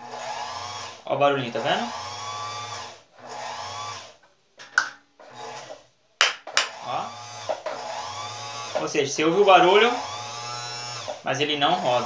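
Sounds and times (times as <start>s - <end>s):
sewing machine motor whirring: 0.0s - 4.2s, 5.2s - 5.9s, 6.7s - 12.0s.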